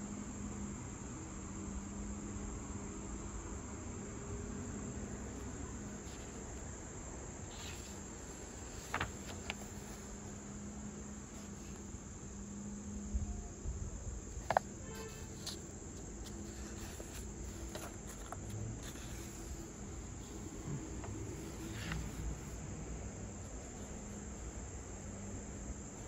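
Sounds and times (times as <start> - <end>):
crickets trilling: 0.0 - 26.0
pages clicking and rustling: 6.0 - 6.6, 7.5 - 10.4, 14.4 - 22.5.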